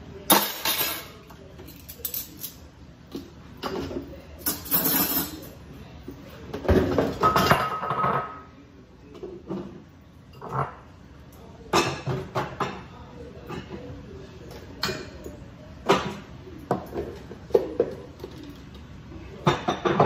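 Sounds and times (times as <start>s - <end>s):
cutlery and dishes clinking: 0.2s - 5.6s, 6.5s - 8.4s, 10.3s - 10.8s, 19.4s - 20.0s.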